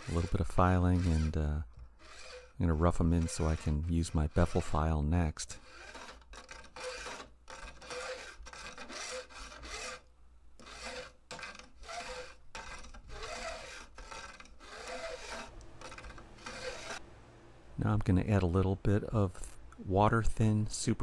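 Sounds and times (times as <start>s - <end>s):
file scraping guitar frets: 0.0s - 4.9s, 5.5s - 17.0s.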